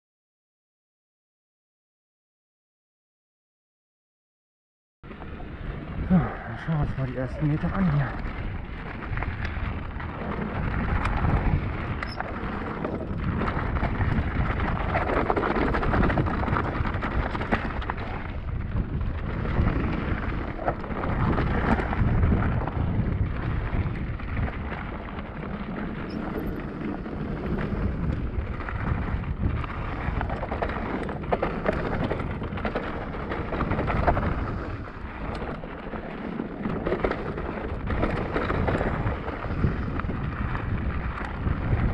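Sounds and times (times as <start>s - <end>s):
bike tyre rumble on dirt: 5.0s - 41.9s
wind buffeting microphone: 5.1s - 41.9s.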